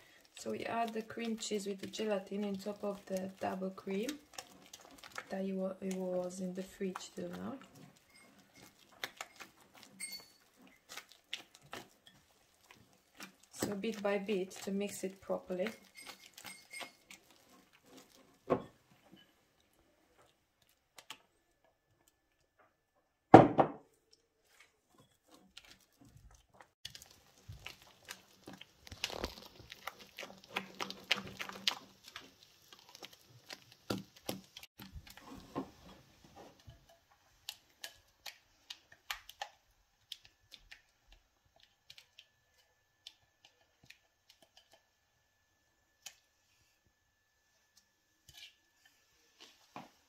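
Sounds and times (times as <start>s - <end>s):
spatula scraping cream in bowl: 0.6s - 18.5s.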